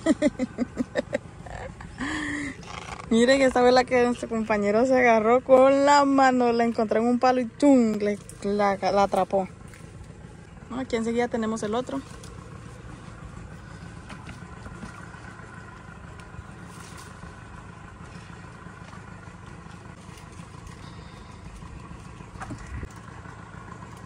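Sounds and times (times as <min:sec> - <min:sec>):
outboard motor running: 0:00.0 - 0:24.0.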